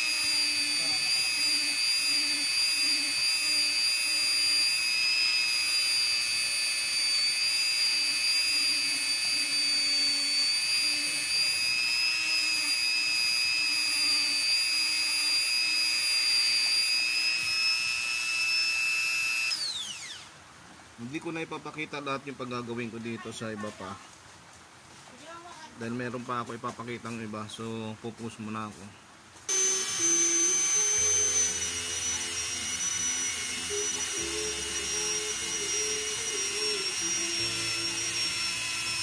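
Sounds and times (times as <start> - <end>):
rotary tool grinding whine: 0.0 - 20.4, 29.5 - 39.0.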